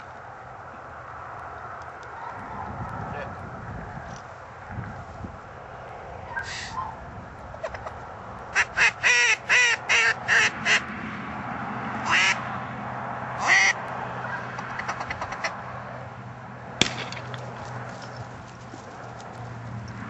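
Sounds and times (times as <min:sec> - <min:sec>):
duck call quacks: 0:08.5 - 0:10.8, 0:12.0 - 0:12.4, 0:13.4 - 0:13.8.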